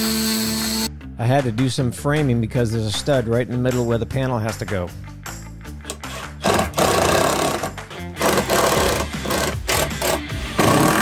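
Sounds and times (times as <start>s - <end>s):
impact driver driving screws: 5.9s - 11.0s.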